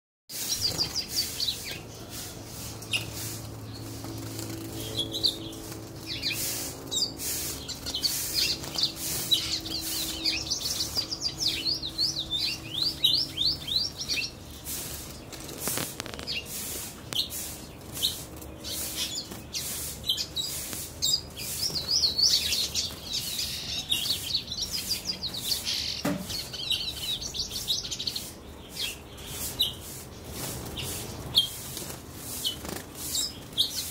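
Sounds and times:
bird singing high chirps: 0:00.3 - 0:02.2, 0:04.6 - 0:14.6, 0:16.2 - 0:29.9.

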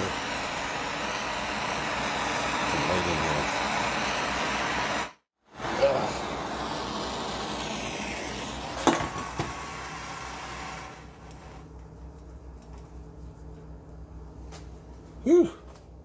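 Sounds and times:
gas torch flame hissing: 0:00.0 - 0:11.7.

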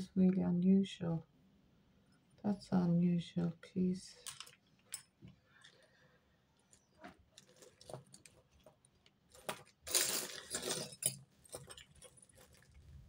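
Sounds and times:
metal jewellery clinking: 0:04.2 - 0:05.2, 0:09.3 - 0:12.7.

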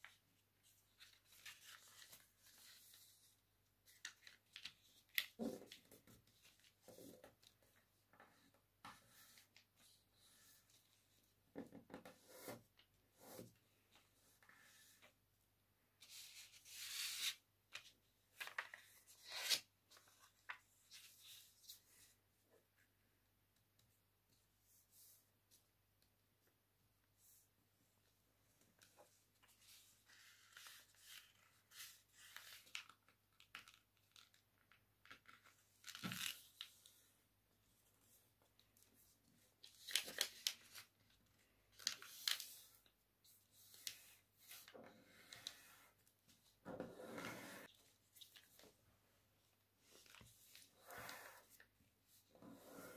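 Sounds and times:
paper rustling and crinkling: 0:00.0 - 0:07.8, 0:16.0 - 0:21.8, 0:38.5 - 0:42.9.

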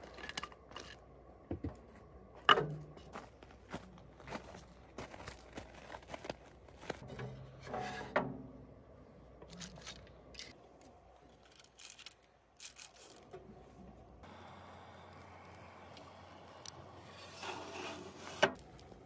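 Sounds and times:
objects being handled: 0:09.4 - 0:14.0.

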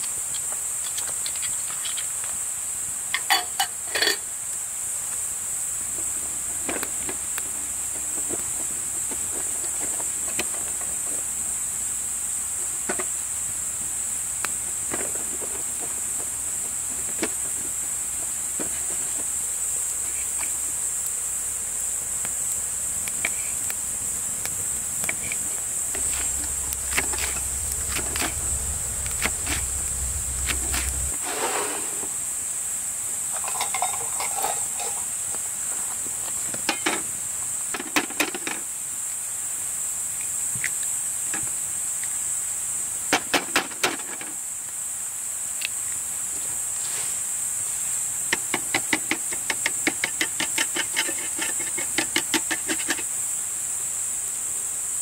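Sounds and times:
insects chirring: 0:00.0 - 0:55.0
low hum: 0:23.1 - 0:31.2.

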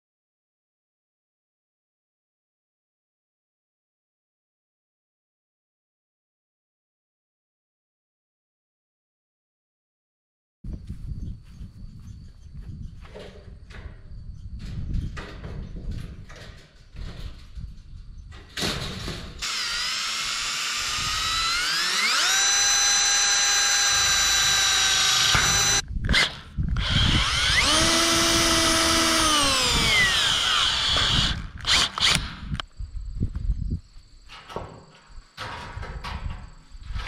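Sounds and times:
handling knocks and clatter: 0:13.0 - 0:19.4, 0:34.3 - 0:37.0
power drill whining: 0:19.4 - 0:32.6.

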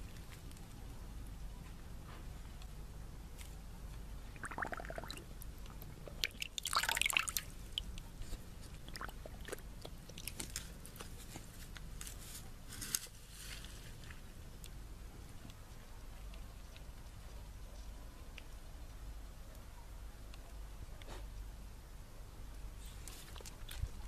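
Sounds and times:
dog splashing in water bowl: 0:04.4 - 0:05.3.

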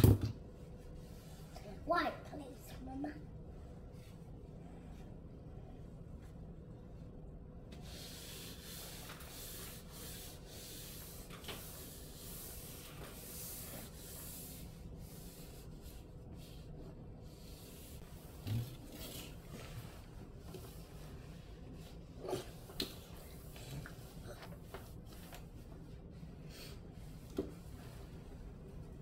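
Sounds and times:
cloth wiping countertop: 0:07.7 - 0:29.0.

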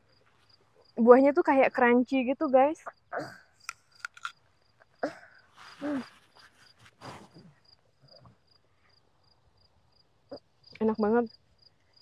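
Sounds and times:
insect chirping: 0:00.0 - 0:12.0
apple being bitten and chewed: 0:03.7 - 0:04.4
short voiced hum: 0:05.8 - 0:06.1.

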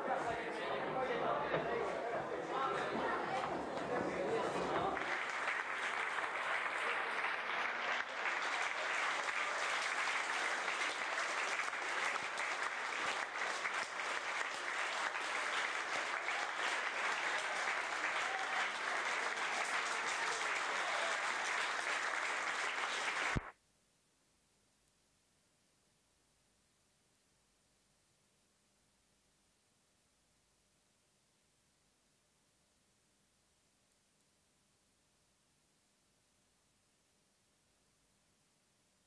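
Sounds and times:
audience applauding: 0:02.5 - 0:23.5.

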